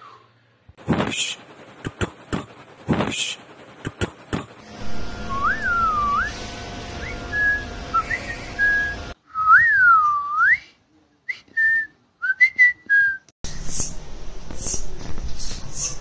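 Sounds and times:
person whistling: 0:05.3 - 0:06.3, 0:07.0 - 0:13.3
short hissing sounds: 0:13.5 - 0:16.0.

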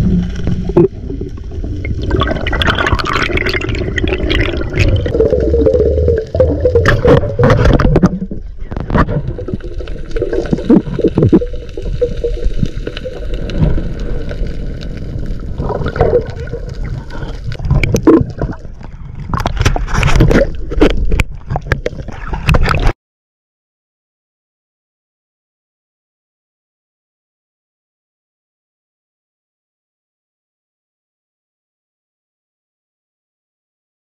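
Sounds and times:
underwater rumble and bubbling: 0:00.0 - 0:23.0.

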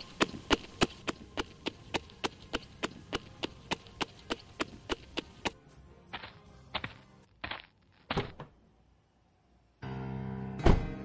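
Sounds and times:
hard shoe footsteps on pavement: 0:00.0 - 0:05.6.

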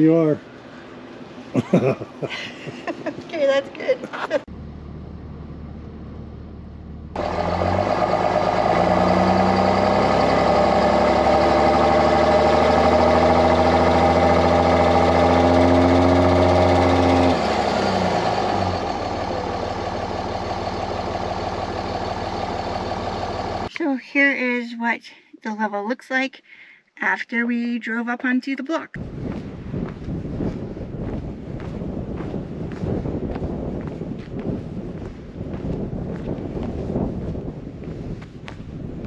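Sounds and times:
pickup truck engine running: 0:04.5 - 0:23.7.

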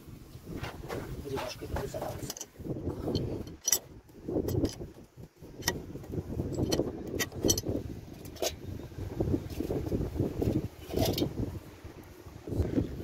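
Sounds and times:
wrench clinking on metal: 0:03.1 - 0:03.9, 0:06.5 - 0:07.7.

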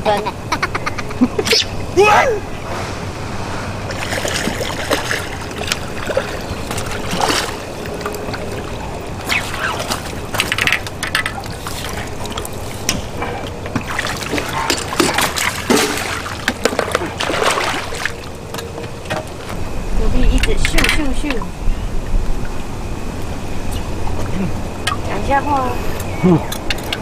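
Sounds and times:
water splashing: 0:01.4 - 0:19.6.

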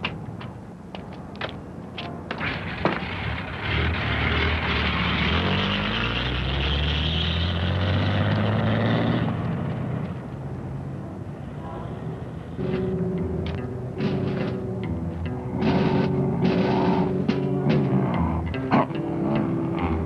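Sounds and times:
engine running and revving: 0:02.3 - 0:10.3, 0:15.4 - 0:20.0.

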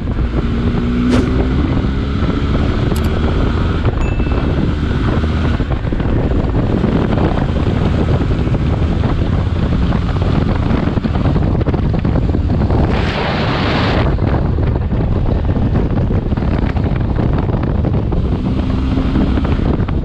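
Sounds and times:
motorcycle engine running: 0:00.0 - 0:12.9, 0:14.1 - 0:20.0
wind rushing over microphone: 0:00.0 - 0:20.0.

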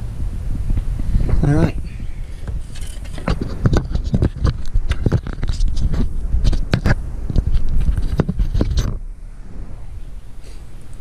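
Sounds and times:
handling clicks and scrapes: 0:02.2 - 0:09.0.

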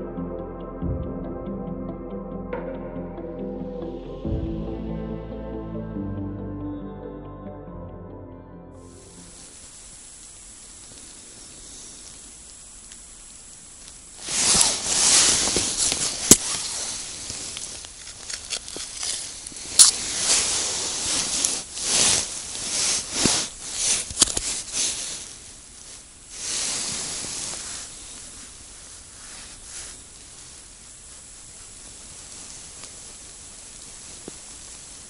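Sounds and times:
ice scoop scraping snow and slush: 0:14.2 - 0:25.4.

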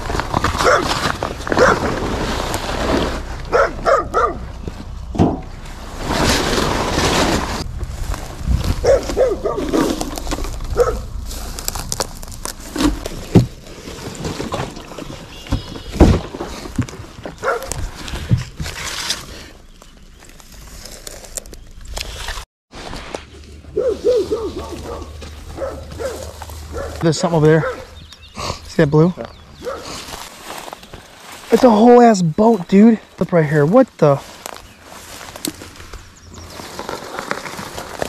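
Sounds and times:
footsteps through dry brush: 0:00.0 - 0:15.8, 0:16.5 - 0:38.0
twigs snapping: 0:07.8 - 0:13.6, 0:34.3 - 0:38.0.

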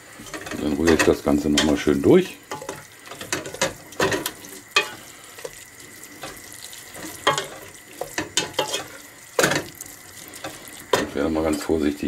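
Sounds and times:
spoon stirring thick jam: 0:00.3 - 0:11.7
spoon scraping metal pot: 0:02.5 - 0:05.6, 0:06.2 - 0:11.2.

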